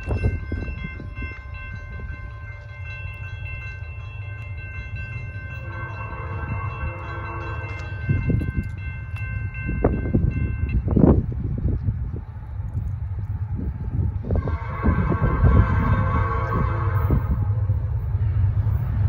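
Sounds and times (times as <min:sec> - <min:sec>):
crossing warning bell ringing: 0:00.0 - 0:11.7, 0:13.9 - 0:19.0
freight train rumble: 0:00.0 - 0:19.0
locomotive horn blast: 0:05.5 - 0:08.1, 0:14.3 - 0:17.7.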